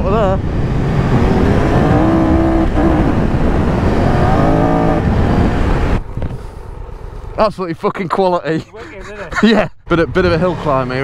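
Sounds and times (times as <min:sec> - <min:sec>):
motorcycle engine accelerating: 0:00.0 - 0:07.4
heavy wind: 0:00.0 - 0:07.9.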